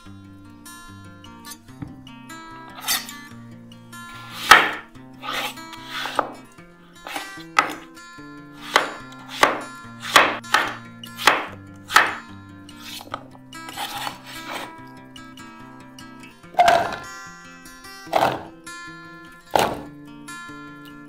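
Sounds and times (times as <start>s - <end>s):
knife cutting potato on wood: 2.8s - 3.2s, 4.2s - 6.4s, 7.0s - 7.9s, 8.6s - 14.7s, 16.6s - 17.1s, 18.1s - 18.5s, 19.6s - 19.9s.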